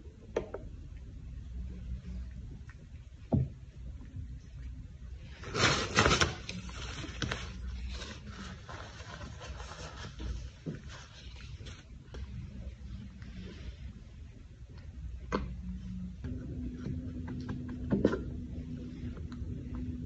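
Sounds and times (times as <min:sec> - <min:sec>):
rustling and scraping: 0:05.2 - 0:14.2.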